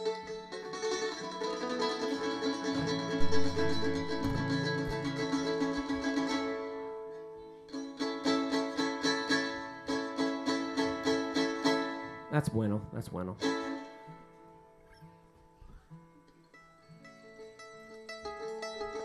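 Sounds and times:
acoustic strings strumming: 0:00.0 - 0:19.0
low bass notes: 0:02.8 - 0:06.2.

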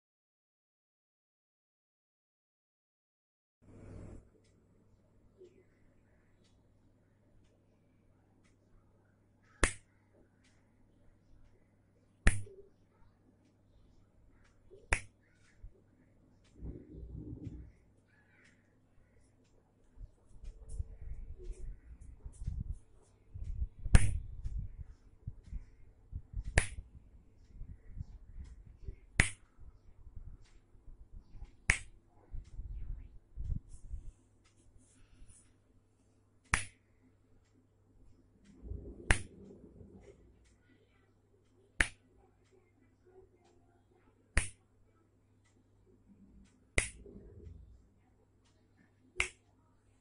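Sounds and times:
finger snaps: 0:09.6 - 0:09.9, 0:12.3 - 0:12.6, 0:14.7 - 0:15.2, 0:23.8 - 0:24.6, 0:26.4 - 0:26.8, 0:29.2 - 0:29.4, 0:31.6 - 0:32.0, 0:36.5 - 0:36.8, 0:38.5 - 0:39.5, 0:41.8 - 0:42.0, 0:44.4 - 0:44.6, 0:46.8 - 0:47.3, 0:49.2 - 0:49.4
low rumble: 0:16.6 - 0:17.8, 0:38.4 - 0:40.5.

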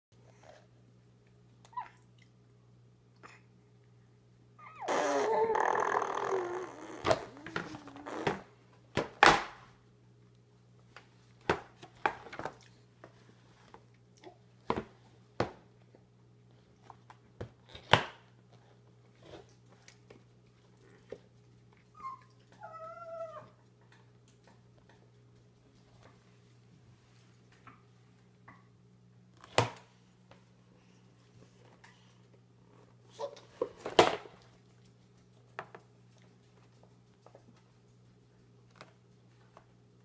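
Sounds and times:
baby squealing: 0:04.6 - 0:07.3
baby babbling: 0:04.6 - 0:08.1.

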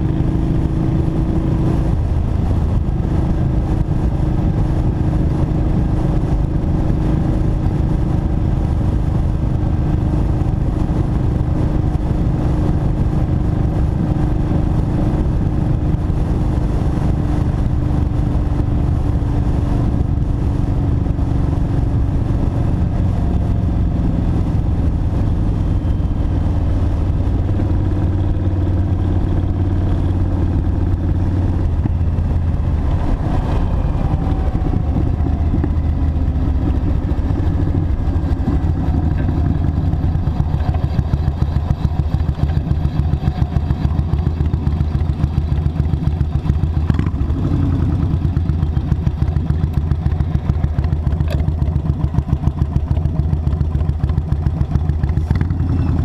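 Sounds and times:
motorcycle engine cruising: 0:00.0 - 0:56.0
wind and road rush: 0:00.0 - 0:56.0
deep low tone: 0:20.9 - 0:42.9.

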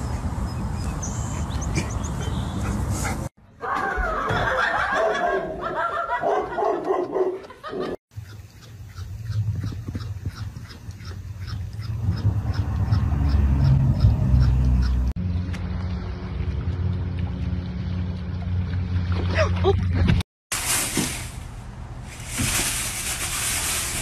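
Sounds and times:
low hum: 0:11.4 - 0:20.2.

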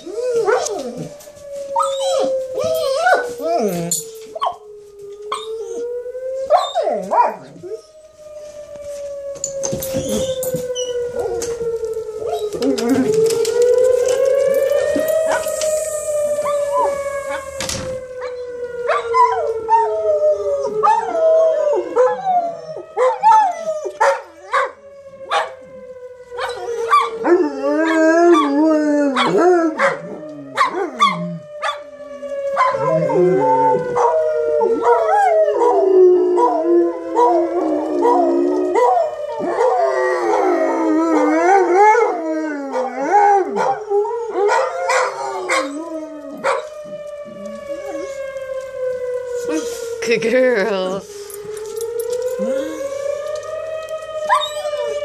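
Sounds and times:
dogs howling: 0:00.0 - 0:08.1, 0:09.2 - 0:49.9, 0:51.2 - 0:55.0
siren rising and falling: 0:00.0 - 0:55.0
dogs barking and yipping: 0:00.3 - 0:01.2, 0:01.8 - 0:04.6, 0:06.5 - 0:07.7, 0:12.2 - 0:15.7, 0:16.4 - 0:17.6, 0:18.2 - 0:19.9, 0:22.8 - 0:25.6, 0:26.4 - 0:27.3, 0:29.1 - 0:35.8, 0:38.0 - 0:40.4, 0:42.7 - 0:48.3, 0:54.2 - 0:55.0.

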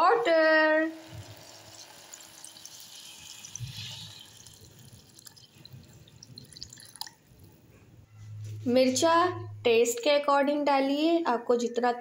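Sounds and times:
water pouring into pot: 0:00.0 - 0:07.3.

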